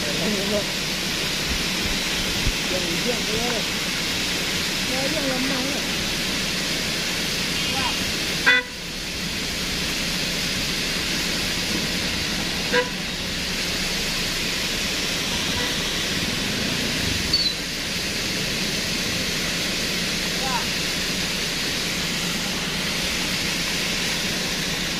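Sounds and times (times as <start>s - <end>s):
rain hissing: 0.0s - 24.9s
running water: 0.0s - 24.9s
vehicle horn toots: 7.6s - 8.8s, 12.7s - 13.1s, 15.3s - 16.0s.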